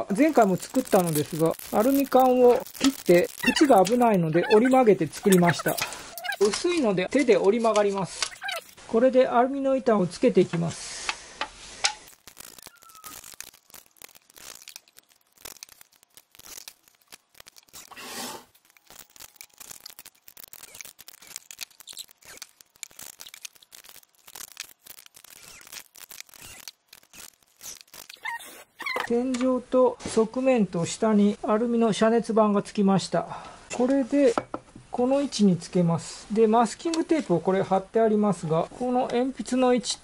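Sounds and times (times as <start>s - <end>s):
thin metal sheet crinkling: 0.0s - 8.8s, 11.6s - 29.1s.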